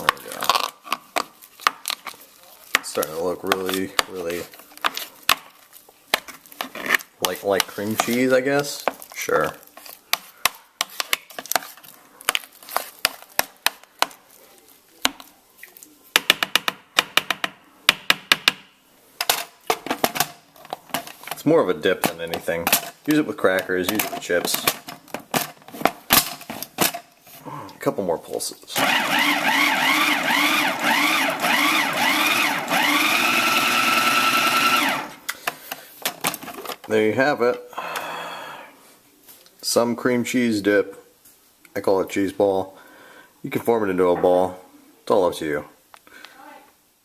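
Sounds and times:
thick mixture being scraped: 0.0s - 5.8s, 6.4s - 15.0s
food processor motor whining: 28.8s - 35.2s.

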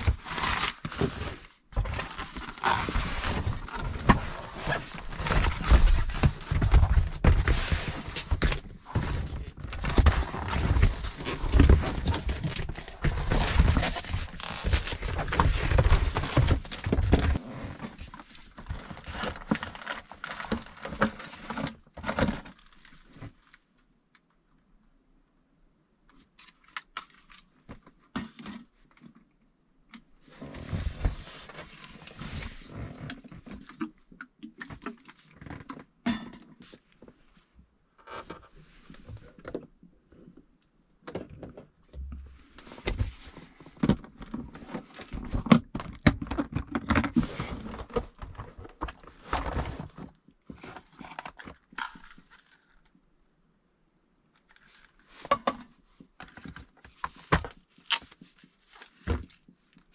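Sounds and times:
gear handling clicks and knocks: 0.0s - 23.6s.

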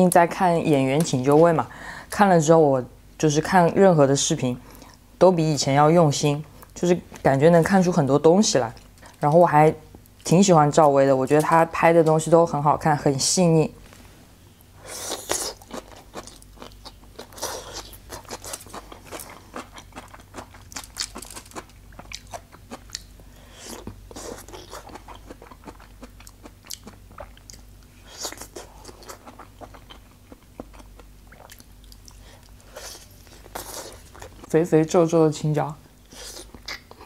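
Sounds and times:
crunchy chewing and biting: 14.9s - 34.5s.

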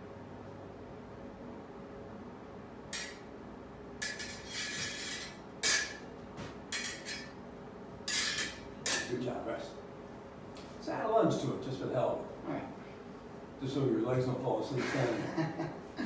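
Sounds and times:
sword blades clinking and scraping: 3.0s - 3.2s, 4.0s - 6.0s, 6.7s - 7.4s, 8.1s - 9.1s.

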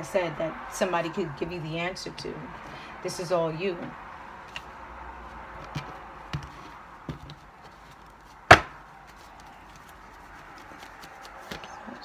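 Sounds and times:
sharp loud knock: 8.5s - 8.8s.

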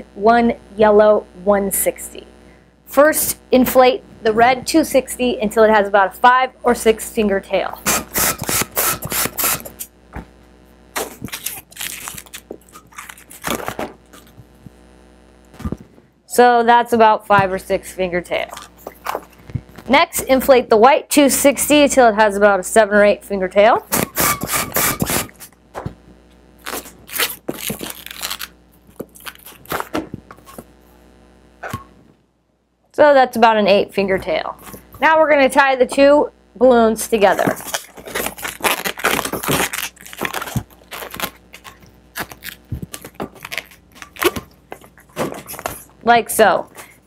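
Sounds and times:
hand pump inflating balloon: 7.8s - 9.8s, 23.9s - 25.5s
balloon rubbing and squeaking: 7.8s - 9.9s, 23.9s - 25.5s, 37.2s - 46.0s
rubbery balloon rustles: 10.9s - 14.6s, 18.5s - 19.9s, 26.6s - 30.8s, 37.2s - 46.0s.

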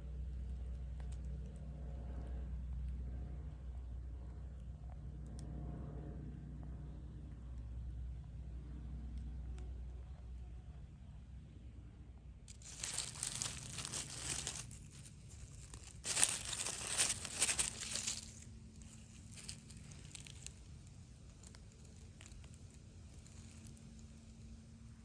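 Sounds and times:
leaf litter rustling and crackling: 12.5s - 24.2s.

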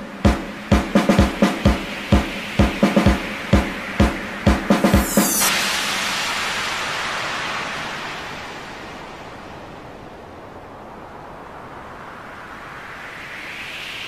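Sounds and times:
drum fill: 0.0s - 7.4s
steady low hiss: 0.0s - 14.0s
crash cymbal ringing: 4.8s - 10.0s.

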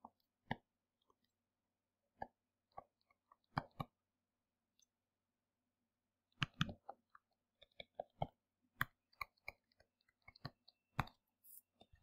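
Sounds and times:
stylus tapping on tablet screen: 6.4s - 12.0s.

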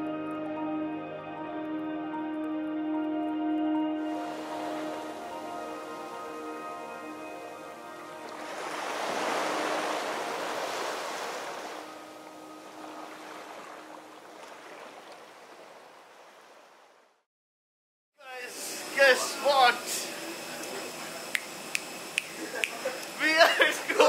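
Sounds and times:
soft ambient music: 0.0s - 14.5s
ocean surf washing in: 4.1s - 16.8s.

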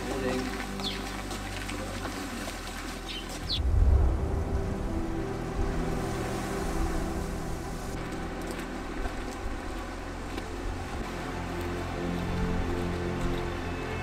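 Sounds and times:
bird chirps: 0.8s - 1.0s
wind blowing: 3.0s - 11.1s
wind gust rumbling on microphone: 3.4s - 8.0s.

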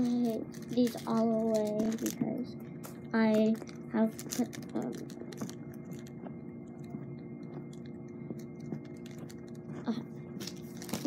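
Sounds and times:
taps and rustles of toys handled: 0.0s - 6.1s
faint steady hum: 0.0s - 11.0s.

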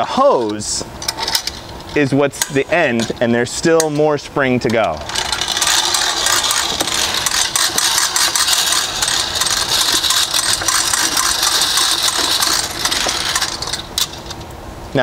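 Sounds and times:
hose reel retracting: 0.2s - 14.5s
ratchet pawl clicking rapidly: 5.0s - 14.2s.

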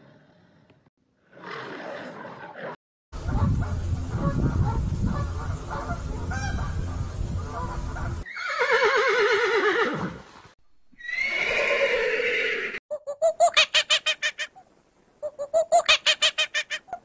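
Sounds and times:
low rumbling noise: 3.2s - 8.2s
horse neighing: 8.2s - 10.2s, 11.0s - 12.8s.

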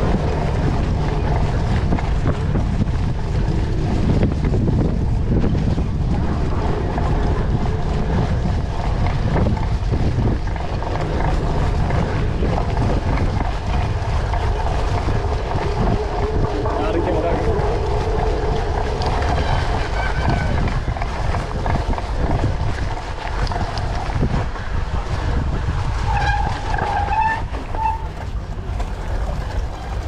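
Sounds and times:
bike tyres rumbling on dirt: 0.0s - 30.0s
wind buffeting microphone: 0.0s - 30.0s.

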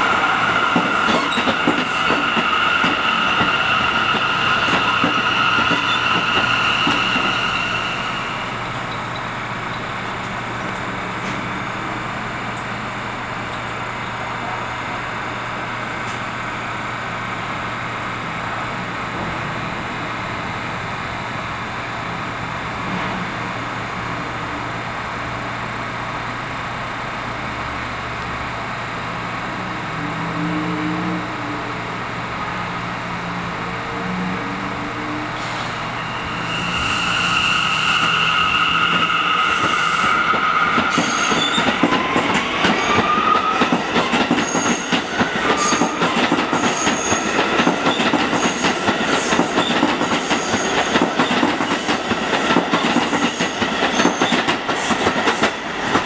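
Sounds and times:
train propulsion whining: 0.0s - 13.8s, 34.0s - 56.0s
subway train humming: 0.0s - 56.0s.

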